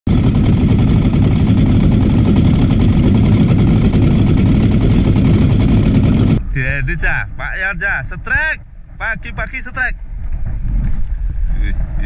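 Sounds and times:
boat engine running: 0:00.1 - 0:06.4.

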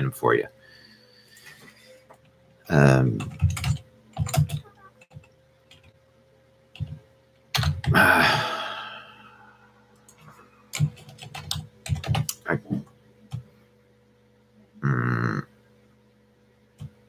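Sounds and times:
computer keyboard clicks: 0:10.1 - 0:12.4.

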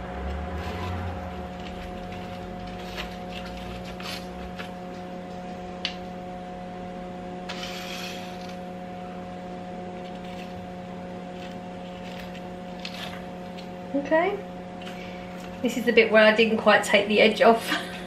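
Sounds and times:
steady electrical hum: 0:00.0 - 0:18.0
crunching scrape of pie crust: 0:07.5 - 0:08.7, 0:11.3 - 0:13.6.

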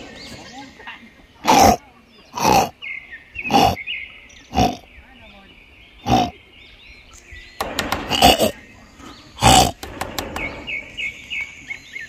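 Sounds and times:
macaque grunting: 0:01.4 - 0:02.8, 0:03.4 - 0:03.8, 0:04.5 - 0:04.8, 0:06.0 - 0:06.4, 0:08.0 - 0:08.6, 0:09.4 - 0:09.9.

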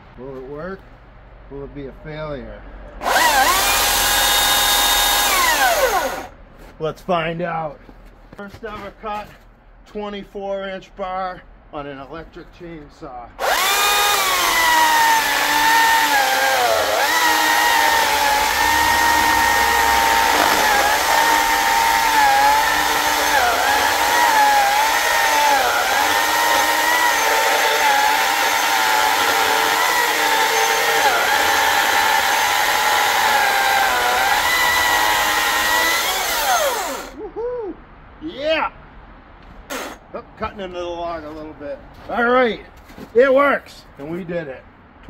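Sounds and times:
battery chainsaw cutting log: 0:03.0 - 0:06.3, 0:13.4 - 0:37.2.

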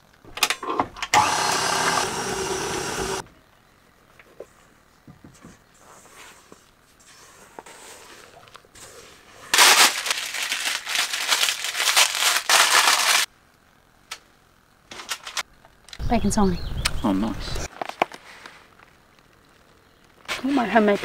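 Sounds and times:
crackly crinkling and rustling: 0:08.0 - 0:14.3, 0:17.6 - 0:21.0.

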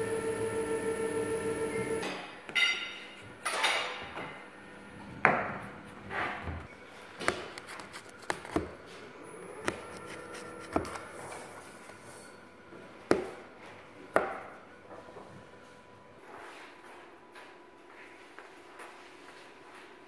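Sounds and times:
blade rasping through pastry: 0:09.6 - 0:12.4.

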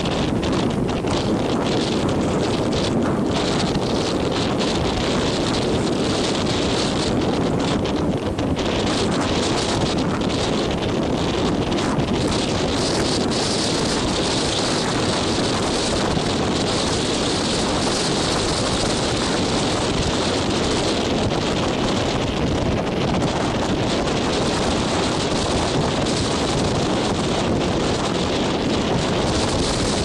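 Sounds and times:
surf breaking on shore: 0:00.0 - 0:30.0
wind buffeting microphone: 0:00.0 - 0:30.0.

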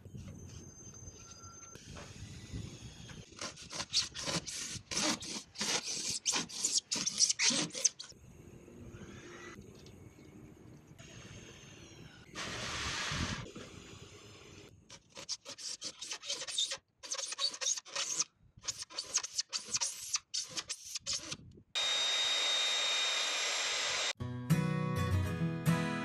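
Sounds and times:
power tool high whine: 0:11.0 - 0:14.6, 0:21.8 - 0:24.2.

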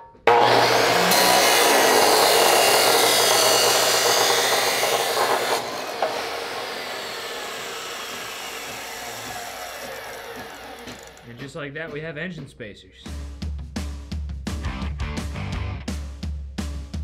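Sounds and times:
chop saw grinding steel: 0:00.2 - 0:11.4
saw blade winding down whine: 0:00.3 - 0:11.4
saw click: 0:05.1 - 0:11.3.

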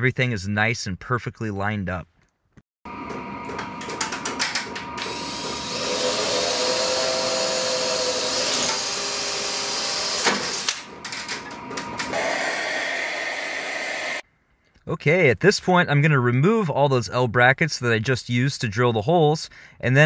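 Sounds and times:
drill clicks: 0:03.5 - 0:14.2
drill drilling through metal: 0:04.4 - 0:14.2.

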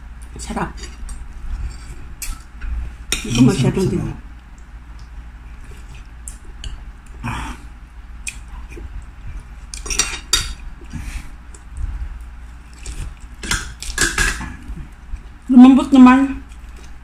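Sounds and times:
person chewing: 0:04.4 - 0:15.5
cutlery clicking on a plate: 0:13.4 - 0:14.5.

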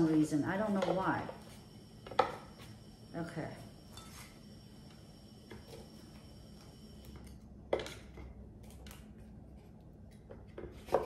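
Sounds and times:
wooden stick knocking waffle iron: 0:00.6 - 0:01.4.

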